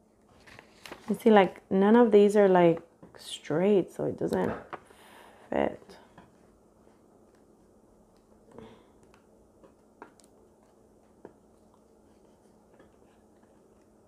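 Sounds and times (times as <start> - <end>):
paper clicks and rustles: 0.3 - 1.2.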